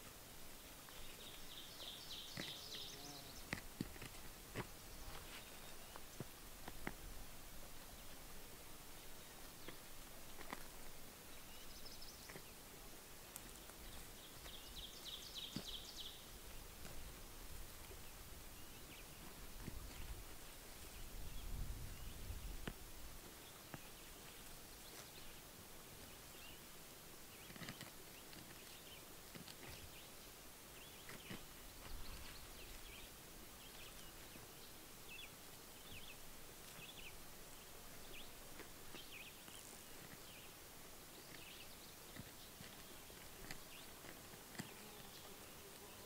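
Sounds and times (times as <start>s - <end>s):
wind rumble on microphone: 20.9s - 23.1s.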